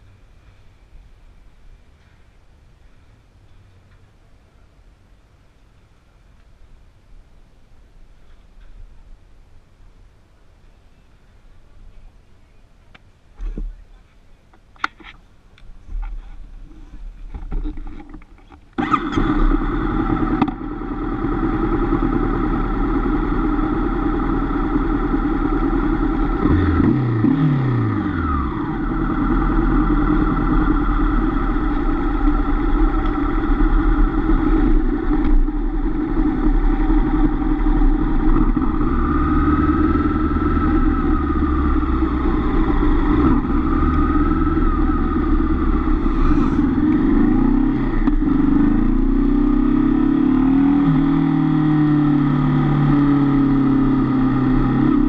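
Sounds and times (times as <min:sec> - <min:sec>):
motorcycle engine revving: 0:18.8 - 0:55.0.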